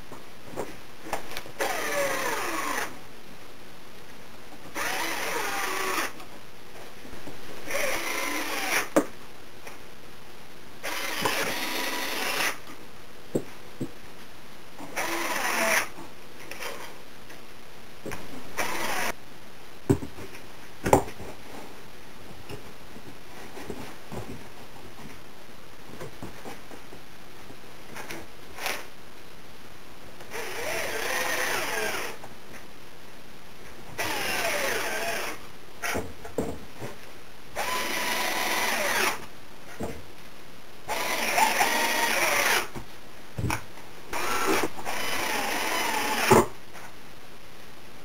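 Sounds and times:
cordless drill driving screws: 1.6s - 2.9s, 4.8s - 6.2s, 7.7s - 8.9s, 10.8s - 12.6s, 15.0s - 15.9s, 18.6s - 19.1s, 30.3s - 32.2s, 34.0s - 36.0s, 37.6s - 39.2s, 40.9s - 42.7s, 44.1s - 46.5s.

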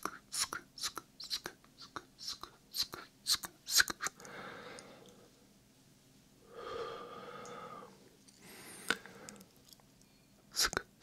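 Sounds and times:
person breathing softly: 4.2s - 5.5s, 6.4s - 9.6s.

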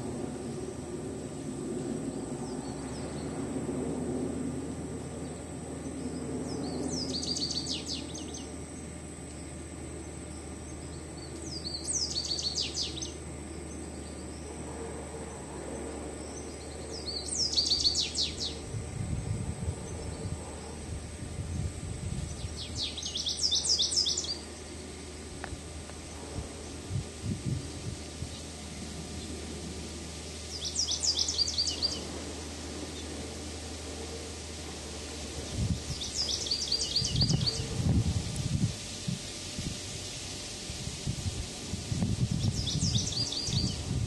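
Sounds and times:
goldfinch twittering: 30.5s - 32.1s, 35.9s - 37.6s.

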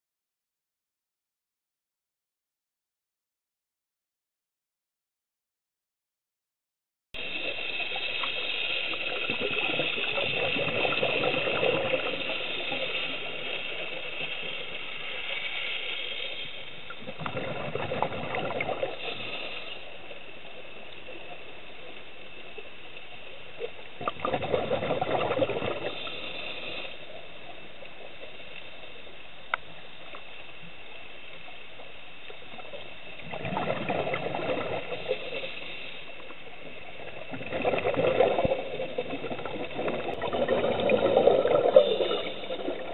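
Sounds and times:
diver's bubbles underwater: 7.2s - 14.4s, 16.9s - 19.4s, 24.0s - 26.2s, 33.2s - 35.5s, 36.7s - 42.9s
underwater hiss: 7.2s - 42.9s.

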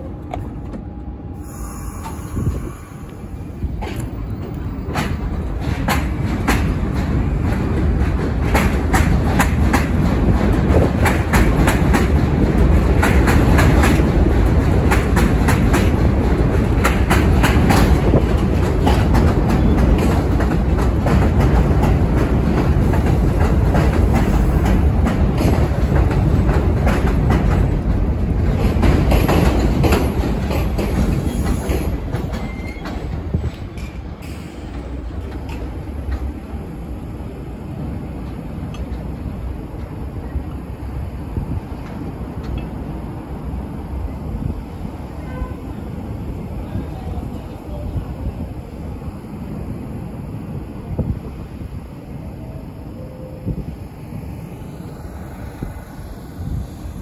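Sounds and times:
train rumble: 0.0s - 57.0s
wheels clicking over rail joints: 3.7s - 36.5s.

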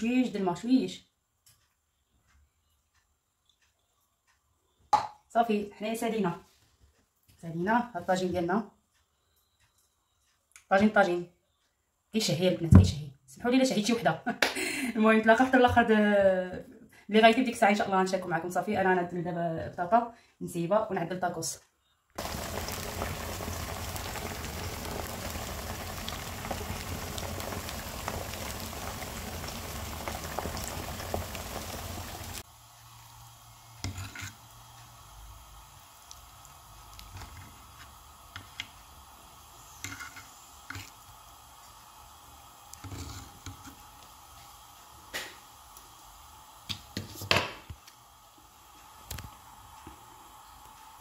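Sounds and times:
stew bubbling and hissing: 22.2s - 51.0s.

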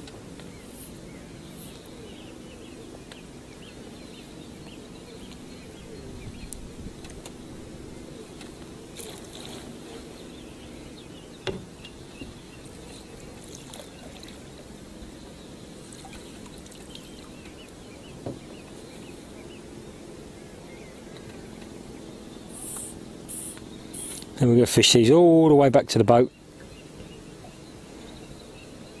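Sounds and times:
water lapping against boat hull: 8.3s - 10.7s, 11.4s - 18.9s
light knocks: 11.4s - 12.3s.

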